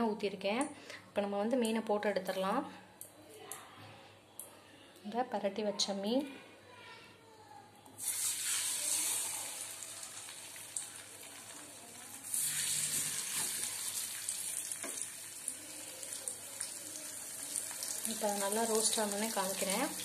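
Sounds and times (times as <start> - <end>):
fish sizzling in hot oil: 8.0 - 20.0.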